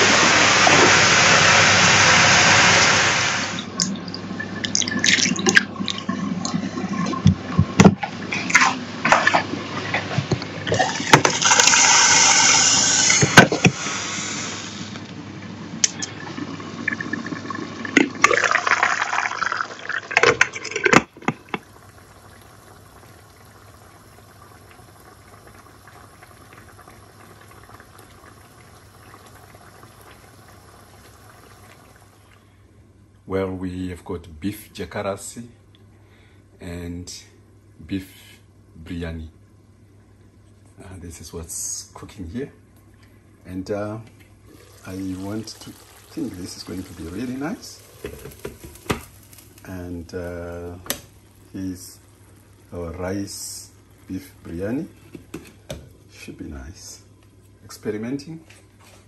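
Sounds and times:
tap water running: 0.0s - 32.5s, 44.2s - 56.3s
faint steady hiss: 0.0s - 59.0s.

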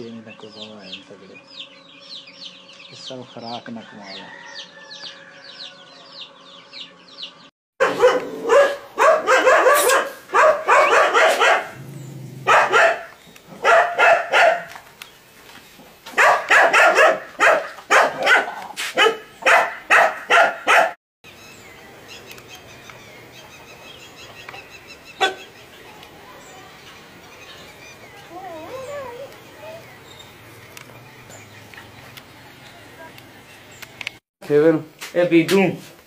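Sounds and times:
bird chirps: 0.0s - 3.8s, 21.3s - 34.0s
dog barking loudly: 7.8s - 14.8s, 16.1s - 21.0s, 25.2s - 25.5s.

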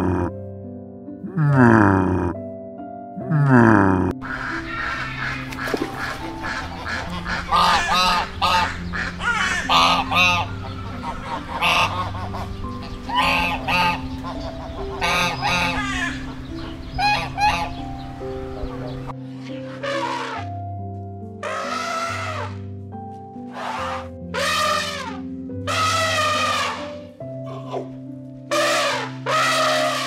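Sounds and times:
soft background music: 0.0s - 30.0s
ducks whistling calls: 4.2s - 20.5s, 21.4s - 22.6s, 23.5s - 27.8s, 28.5s - 30.0s.

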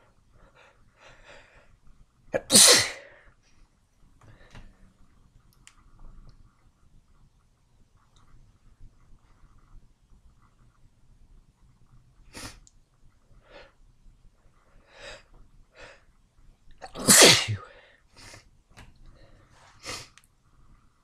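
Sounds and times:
wet sneezes: 2.4s - 3.1s, 16.8s - 17.8s.

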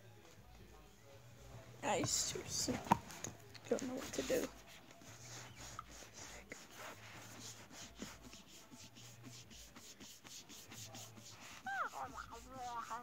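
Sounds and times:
hands rubbing plastic toy egg: 3.7s - 13.0s.

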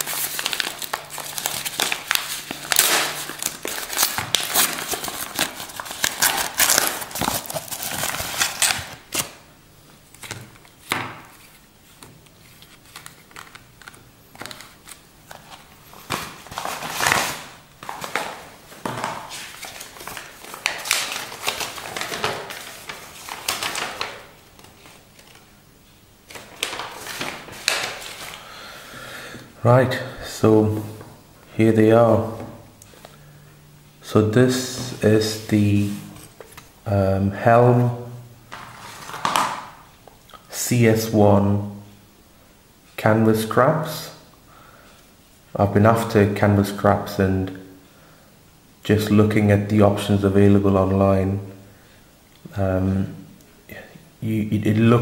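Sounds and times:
plastic bags rustling: 0.0s - 9.4s, 10.2s - 25.5s, 26.3s - 28.8s, 38.5s - 39.9s
tissue paper crinkling: 0.0s - 9.4s, 11.4s - 25.4s, 26.3s - 28.5s.

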